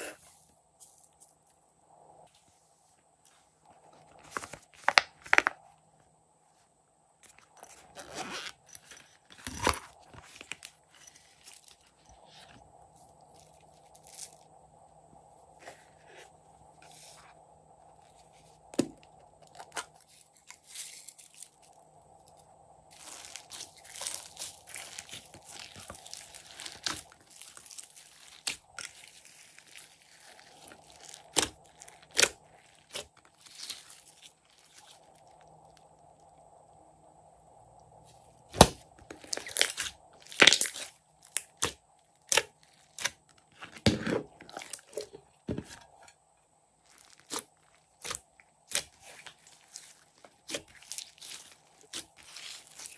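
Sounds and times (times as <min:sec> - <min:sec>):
crackle of glitter in slime: 0:19.6 - 0:36.3, 0:46.8 - 0:52.9.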